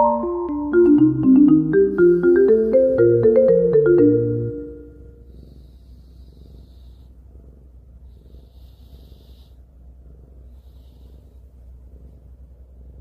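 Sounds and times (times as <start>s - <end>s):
soft breathy hiss: 1.6s - 3.8s, 5.0s - 13.0s
cat purring: 1.8s - 3.5s, 4.8s - 13.0s.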